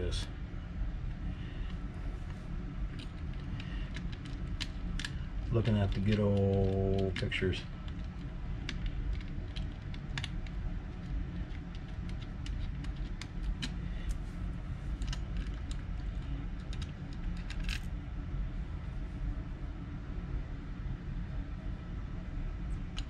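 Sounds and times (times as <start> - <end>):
steady low hum: 0.0 - 23.0
small parts clicking and tapping: 1.6 - 14.2, 14.9 - 17.9.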